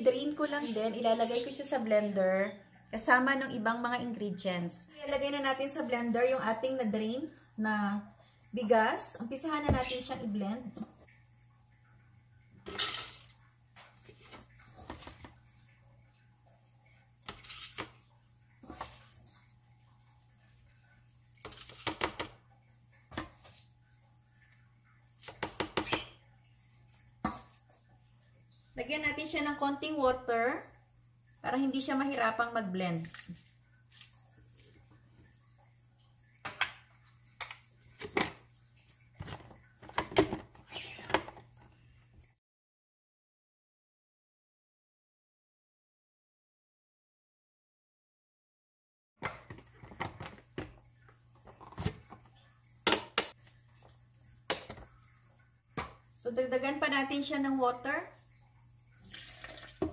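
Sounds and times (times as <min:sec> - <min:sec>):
low steady hum: 0:00.0 - 0:42.4.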